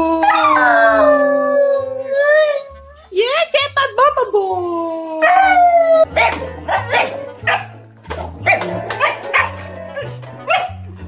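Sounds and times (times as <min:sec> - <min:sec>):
dog howling: 0:00.0 - 0:02.8
dog barking and yipping: 0:05.3 - 0:11.0.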